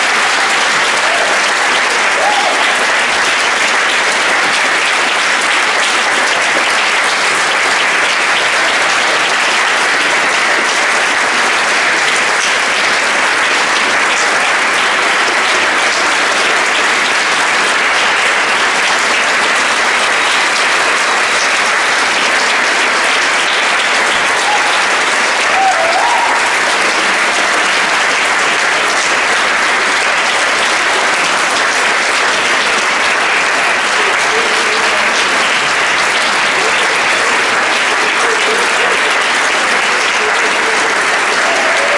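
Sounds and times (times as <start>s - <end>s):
audience applauding: 0.0s - 41.9s.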